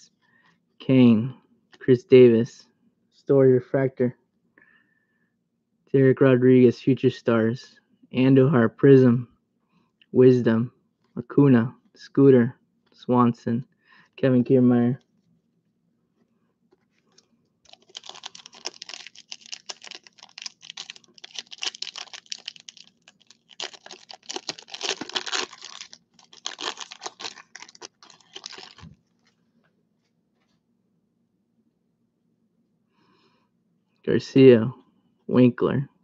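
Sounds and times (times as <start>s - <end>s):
card pack wrapper crinkling and tearing: 17.7s - 29.3s.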